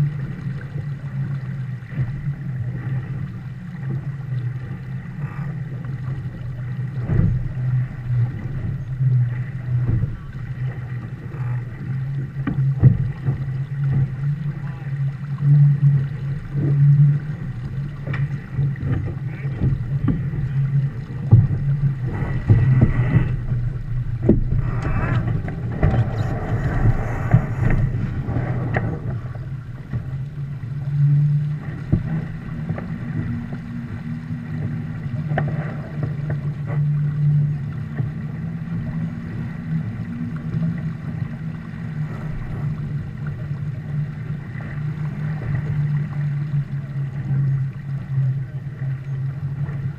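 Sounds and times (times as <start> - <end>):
low rumble: 0.0 - 49.9
water rushing along boat hull: 0.0 - 49.9
knocks and splashes: 6.1 - 38.4
wind buffeting microphone: 6.4 - 37.0.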